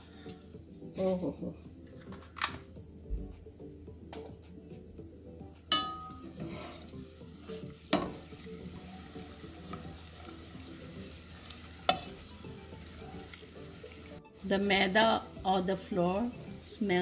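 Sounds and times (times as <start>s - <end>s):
syrup sizzling and bubbling: 4.6s - 17.0s
spatula stirring: 5.7s - 14.2s.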